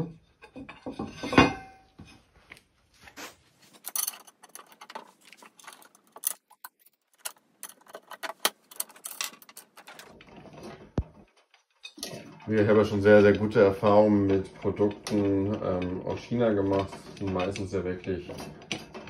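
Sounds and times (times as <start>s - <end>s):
small metal parts clinking: 3.8s - 10.2s.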